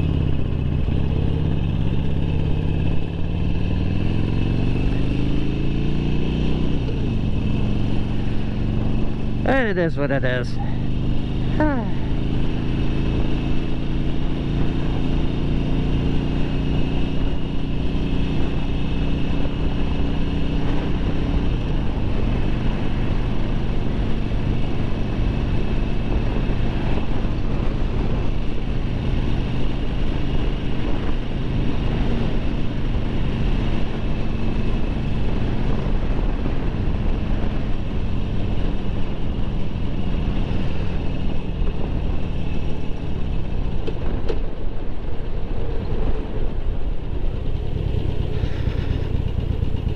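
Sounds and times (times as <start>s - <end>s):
motorcycle engine cruising: 0.0s - 49.9s.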